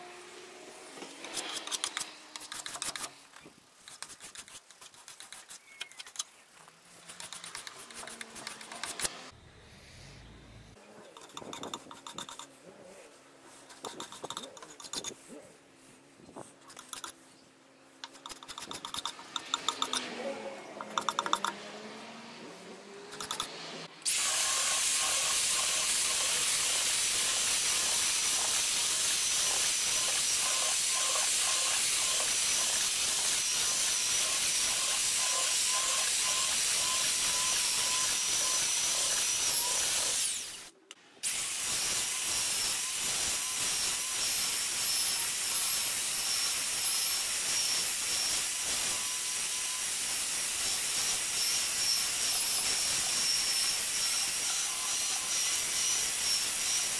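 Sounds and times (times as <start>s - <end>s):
electric power tool whining: 19.1s - 56.9s.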